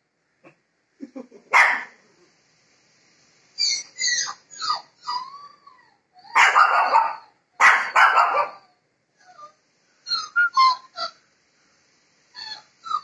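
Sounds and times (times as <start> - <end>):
puppies yipping and barking: 3.6 - 7.3.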